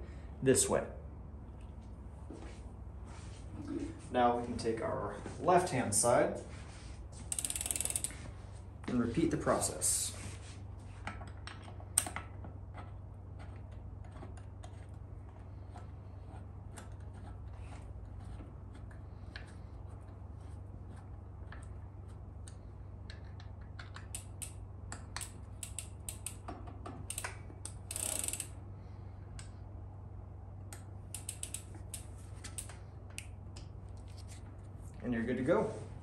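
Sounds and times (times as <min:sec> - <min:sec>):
steady low hum: 0:00.0 - 0:36.0
hex key clicking in pedal: 0:31.2 - 0:33.3.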